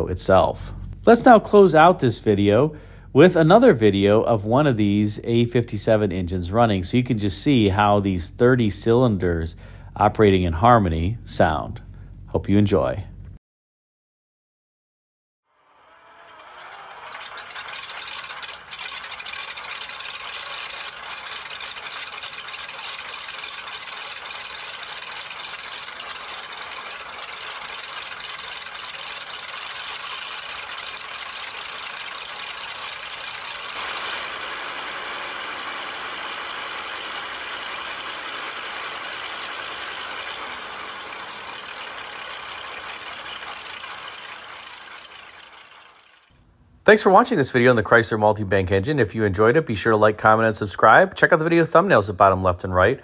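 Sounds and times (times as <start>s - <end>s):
large engine running steadily: 7.6s - 12.4s, 17.5s - 46.3s.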